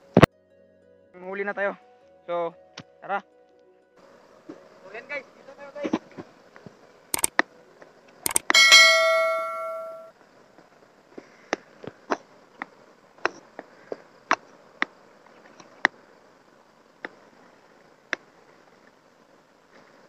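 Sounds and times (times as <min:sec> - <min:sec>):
sharp irregular clicks: 0:07.2 - 0:07.4, 0:08.3 - 0:08.6
notification bell ringing: 0:08.3 - 0:10.1.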